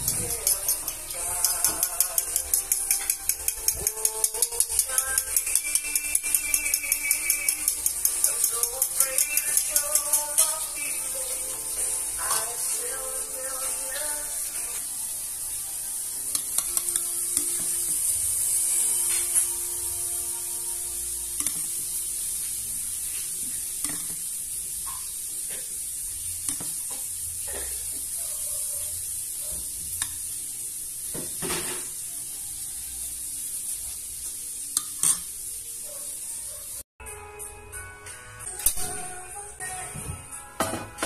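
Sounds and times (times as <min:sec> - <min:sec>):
spoon clinking and scraping bowl: 0:00.0 - 0:10.9, 0:16.3 - 0:18.1, 0:21.4 - 0:21.7, 0:34.8 - 0:35.3
steady high hiss: 0:00.0 - 0:36.0.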